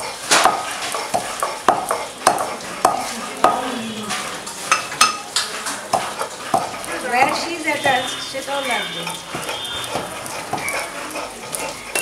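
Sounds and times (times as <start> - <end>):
metal pestle pounding in mortar: 0.3 - 3.6.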